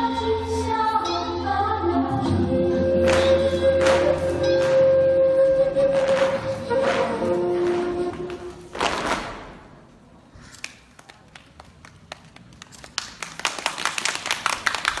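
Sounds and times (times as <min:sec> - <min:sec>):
audience clapping: 0:03.0 - 0:04.8, 0:10.6 - 0:15.0.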